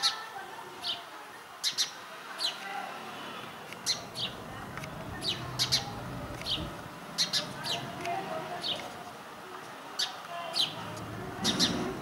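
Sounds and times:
small bird chirping: 0.8 - 2.6, 3.7 - 8.9, 10.0 - 12.0.

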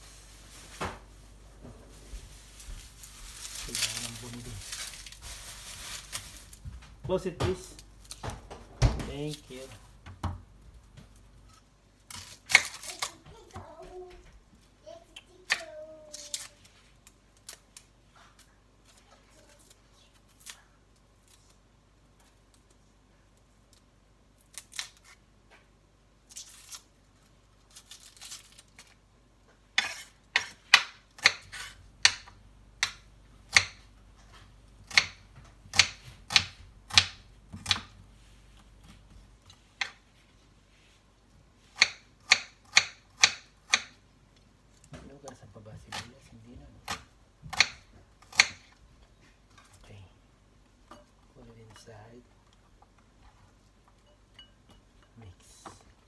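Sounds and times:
knife cutting onion: 15.4 - 16.6, 29.7 - 33.9, 34.8 - 38.0, 41.6 - 44.0, 46.8 - 48.8.

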